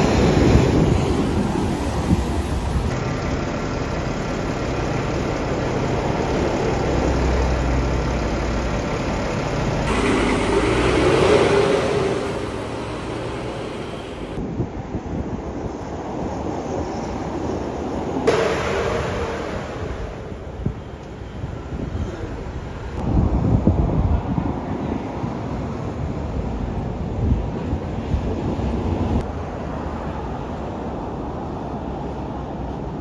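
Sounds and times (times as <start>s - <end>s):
bus engine drone: 0.0s - 33.0s
road traffic noise: 0.0s - 33.0s.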